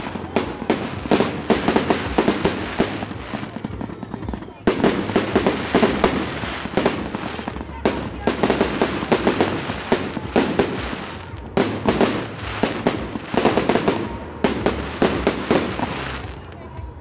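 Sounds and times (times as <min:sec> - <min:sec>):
fireworks bursting with sharp bangs: 0:00.0 - 0:17.0.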